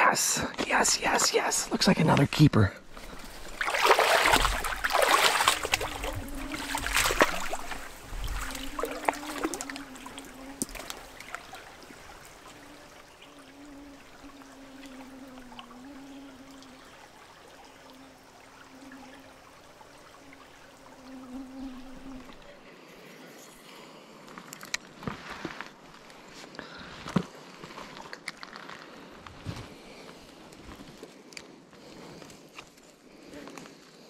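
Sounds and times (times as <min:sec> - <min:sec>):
stream trickling: 0:00.0 - 0:26.5
water splashes and knocks: 0:02.9 - 0:12.8
thin wavering hum: 0:02.9 - 0:22.5.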